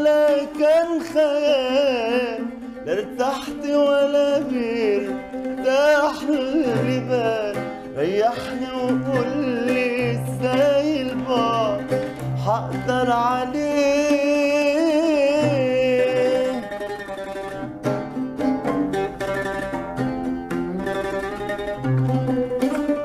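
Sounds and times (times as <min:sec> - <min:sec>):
man singing: 0:00.0 - 0:16.8
oud playing: 0:00.0 - 0:23.0.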